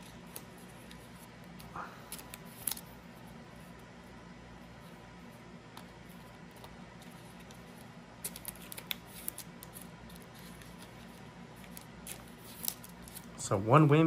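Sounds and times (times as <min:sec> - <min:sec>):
cards clicking and sliding: 0:00.0 - 0:03.0, 0:05.7 - 0:13.3
low steady hum: 0:00.0 - 0:14.0.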